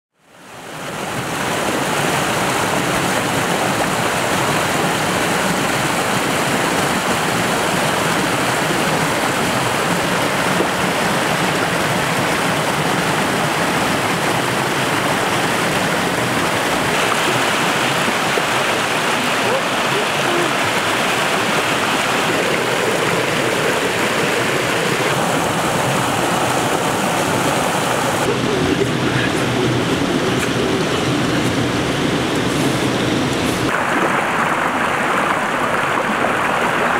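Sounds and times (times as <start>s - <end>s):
stream rushing over rocks: 0.1s - 36.9s.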